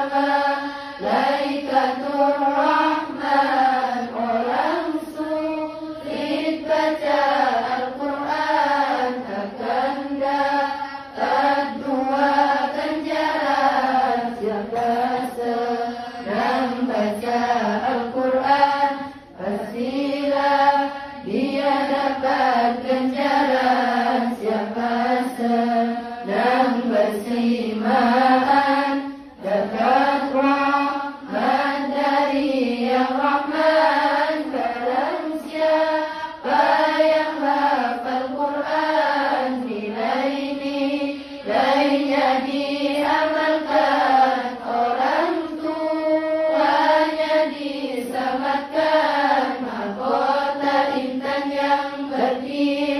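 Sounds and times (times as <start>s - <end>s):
girls chanting devotional song: 0.0s - 52.9s.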